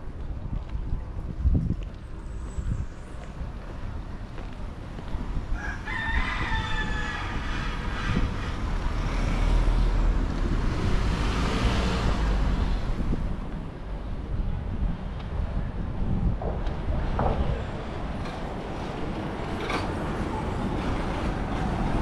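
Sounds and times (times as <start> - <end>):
low street rumble: 0.0 - 22.0
rooster crowing: 5.5 - 7.7
motor vehicle passing: 7.4 - 13.5.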